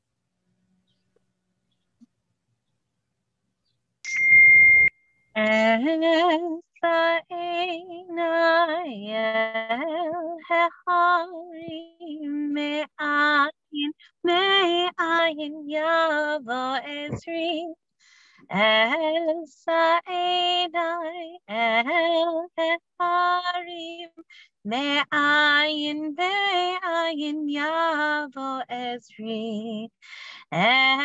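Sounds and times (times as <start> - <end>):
loud electronic tone: 4.1 - 4.9.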